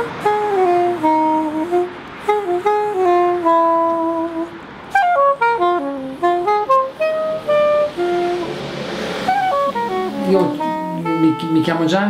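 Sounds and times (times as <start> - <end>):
soprano saxophone melody: 0.0 - 12.0.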